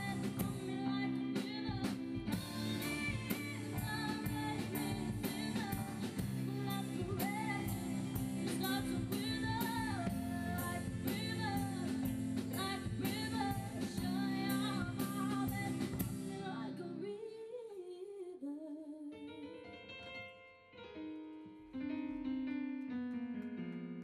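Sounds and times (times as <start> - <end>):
keyboard notes: 0.0 - 16.8
drums: 0.0 - 16.9
electric guitar: 0.0 - 17.0
female singer: 0.0 - 19.6.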